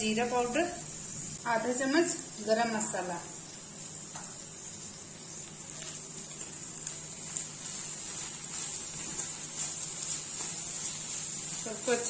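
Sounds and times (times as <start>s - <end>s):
food sizzling in a pan: 0.0s - 12.0s
spatula scraping and stirring: 5.2s - 12.0s.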